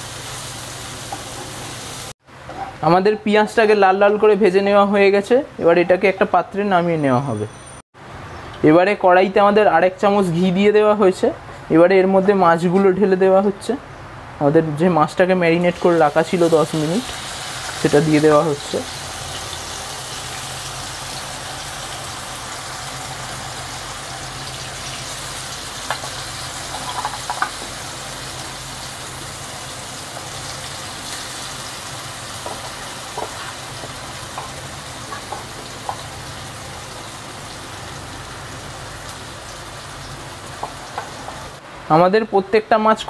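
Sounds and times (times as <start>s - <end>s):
fish sizzling in oil: 0.0s - 2.2s, 15.9s - 41.6s.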